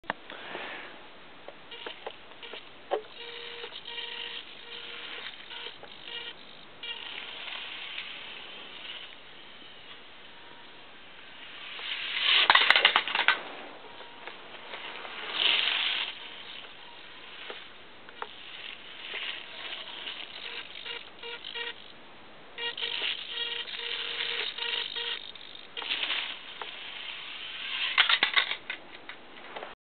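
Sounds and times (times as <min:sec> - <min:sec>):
rc truck motor whine: 0:01.7 - 0:22.0, 0:22.6 - 0:28.6
small wheels rattling: 0:11.8 - 0:17.5.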